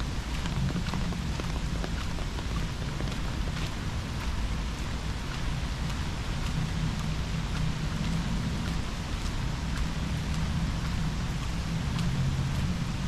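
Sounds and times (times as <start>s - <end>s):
low rumble: 0.0s - 13.0s
raindrops ticking close by: 0.0s - 13.0s
steady rain falling: 0.0s - 13.0s.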